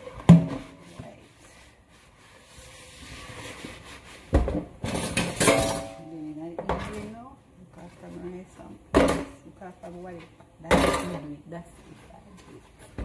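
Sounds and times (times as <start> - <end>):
kitchenware clattering: 4.4 - 7.2, 10.7 - 11.4.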